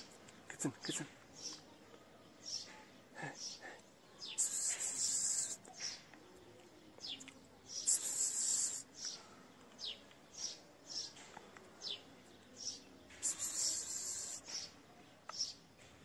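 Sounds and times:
kitten hissing: 4.4 - 5.6, 7.8 - 8.9, 13.2 - 14.4
high falling chirps: 13.2 - 14.6.

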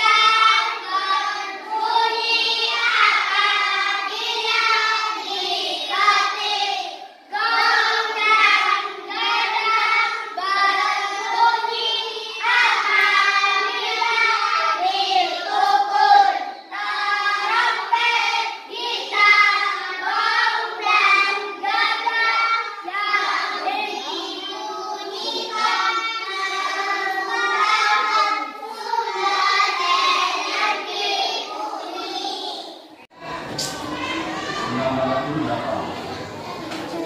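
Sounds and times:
children singing in unison: 0.0 - 37.0.

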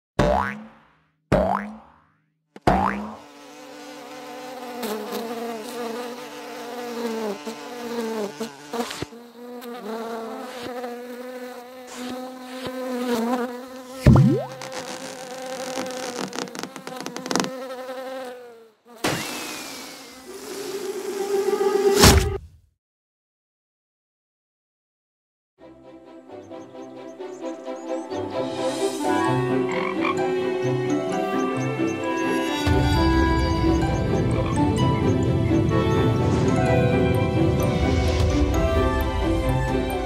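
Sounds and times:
housefly buzzing: 0.4 - 0.6, 2.7 - 22.1, 28.6 - 34.6
sharp loud hit: 22.0 - 22.5.

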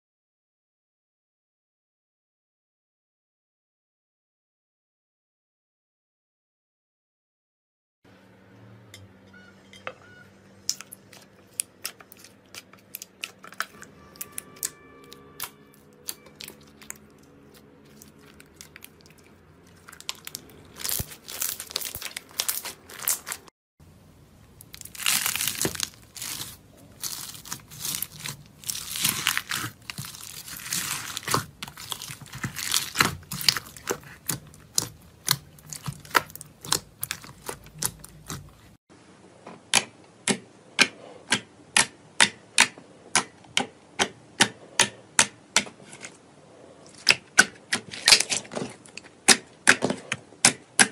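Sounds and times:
slime crackling and popping: 10.7 - 23.5, 24.5 - 38.8.

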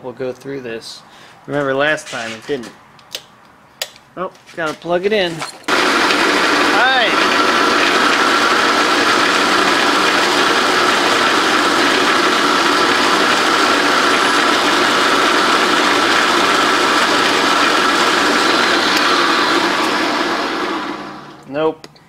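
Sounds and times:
drill bit against cast iron: 5.7 - 20.0
drill press running: 5.7 - 21.5.

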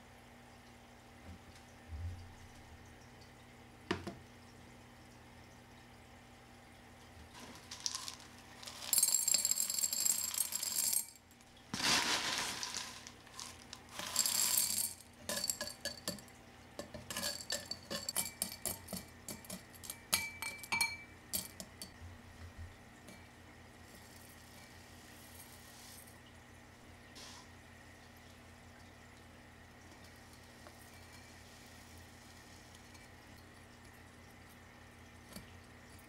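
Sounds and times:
clay pebbles poured into glass jar: 7.3 - 16.1
single pebbles clicking and tapping: 7.4 - 20.3.

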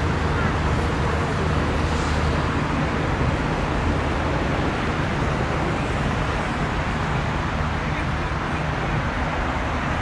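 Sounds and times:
distant jet engine rumble: 0.0 - 10.0.

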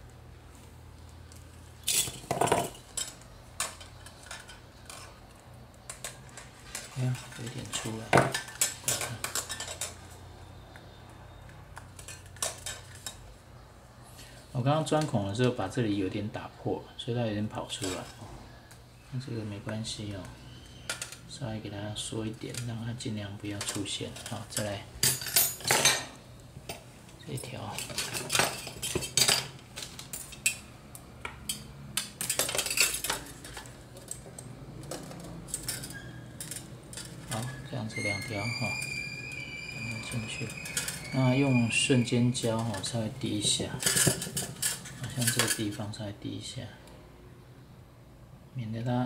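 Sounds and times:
wire scraping and clinking: 1.3 - 10.6, 11.8 - 13.4, 22.0 - 45.8.

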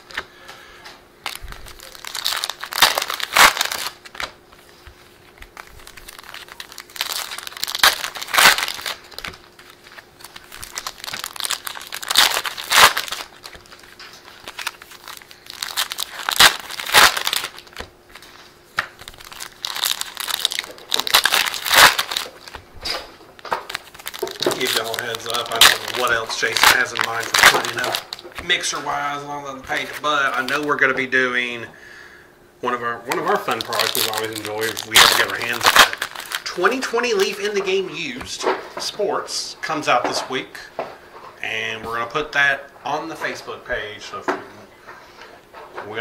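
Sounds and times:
foil card packs tearing and crinkling: 1.2 - 30.9, 33.1 - 38.4.

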